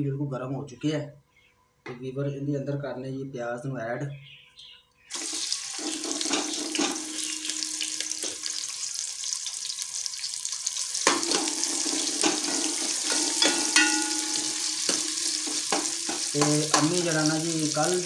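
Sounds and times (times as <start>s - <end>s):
onions sizzling in hot fat: 5.1s - 18.0s
ladle knocking against pot: 12.2s - 16.9s.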